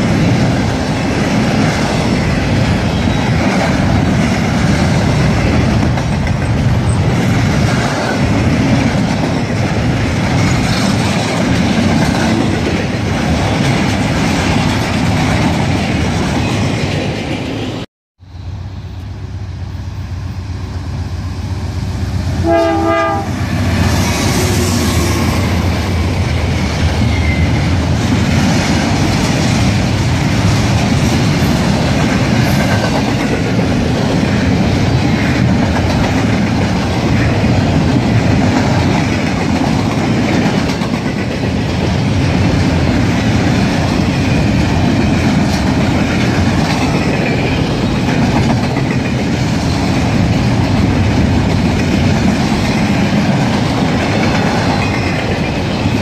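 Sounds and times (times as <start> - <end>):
freight train wheels clacking: 0.0 - 17.8, 18.7 - 56.0
train horn: 22.2 - 26.0.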